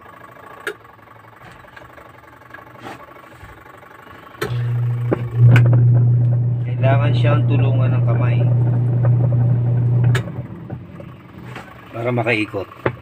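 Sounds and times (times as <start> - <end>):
washing machine motor humming: 4.4 - 11.6.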